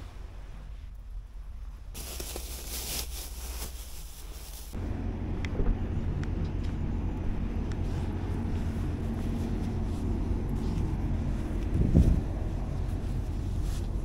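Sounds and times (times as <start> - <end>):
engine idling: 4.7 - 14.0.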